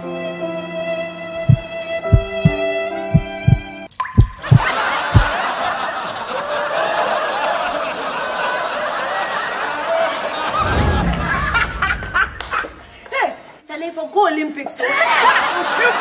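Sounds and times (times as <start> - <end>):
crowd laughing: 4.6 - 13.1, 14.8 - 16.0
low rumble: 10.5 - 12.9.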